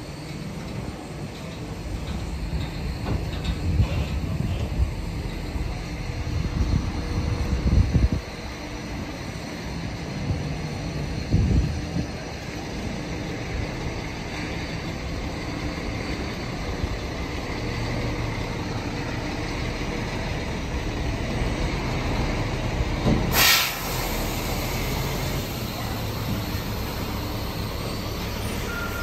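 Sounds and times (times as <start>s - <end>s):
truck diesel engine running: 0.0s - 29.0s
compressed air hiss: 23.3s - 28.6s.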